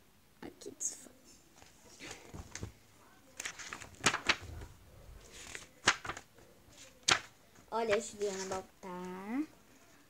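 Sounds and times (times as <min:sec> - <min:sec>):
paper rustling: 0:01.6 - 0:09.2.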